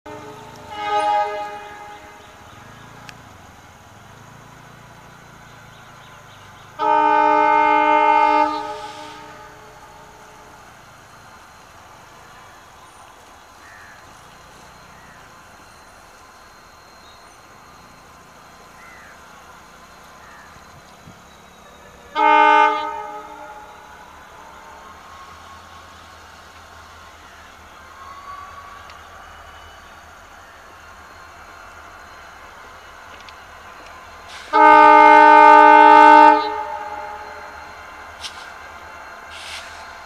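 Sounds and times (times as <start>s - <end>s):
locomotive air horn blasts: 0.1s - 2.3s, 6.8s - 10.6s, 22.1s - 25.8s, 34.3s - 37.7s
faint steady rumble: 0.1s - 40.0s.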